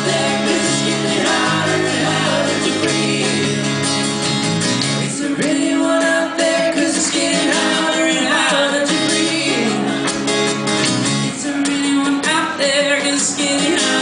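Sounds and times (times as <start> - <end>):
strummed acoustic guitars: 0.0 - 14.0
person singing: 5.1 - 10.1.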